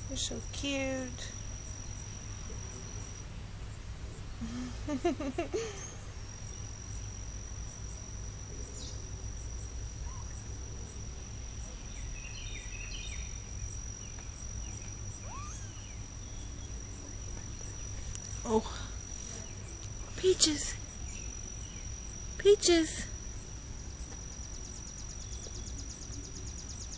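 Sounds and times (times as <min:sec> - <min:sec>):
insect trill: 0:00.0 - 0:26.9
low outdoor rumble: 0:00.0 - 0:26.9
faint chirps: 0:00.1 - 0:26.9
wavering animal call: 0:15.2 - 0:16.0.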